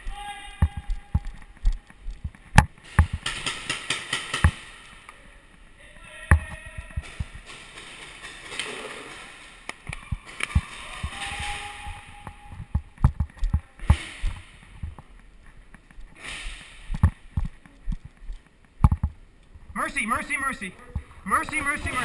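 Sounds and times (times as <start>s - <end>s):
short hiss: 16.2s - 17.0s.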